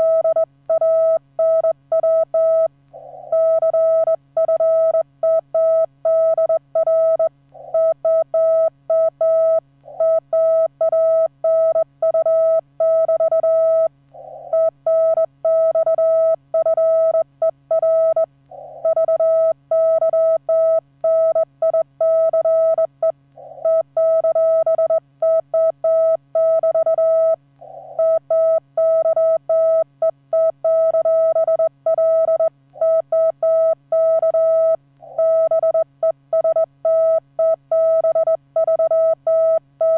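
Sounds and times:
morse code tone: 0:28.0 - 0:39.9.

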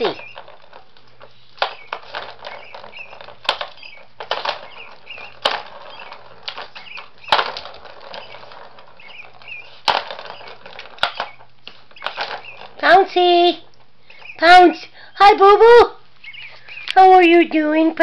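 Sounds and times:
ball rattling in toy track: 0:00.0 - 0:13.8.

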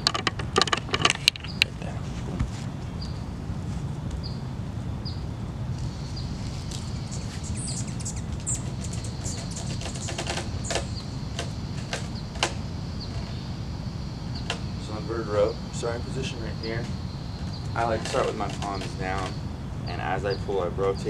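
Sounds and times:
low outdoor background noise: 0:00.0 - 0:21.0
small bird chirping: 0:05.8 - 0:13.6, 0:15.6 - 0:21.0.

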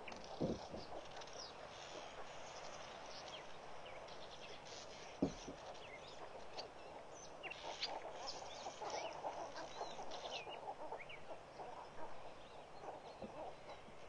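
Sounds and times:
flock of birds calling: 0:00.0 - 0:14.0.

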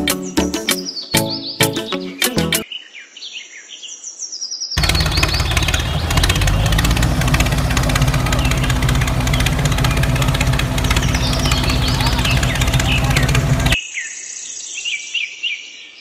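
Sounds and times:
faint bird chirps: 0:02.6 - 0:06.8, 0:08.4 - 0:16.0
tractor engine running: 0:04.8 - 0:13.8.

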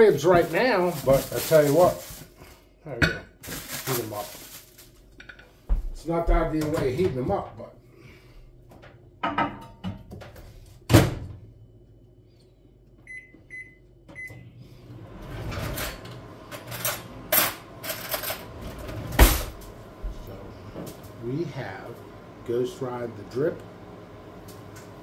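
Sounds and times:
microwave oven thump: 0:10.9 - 0:11.4, 0:19.1 - 0:20.9.

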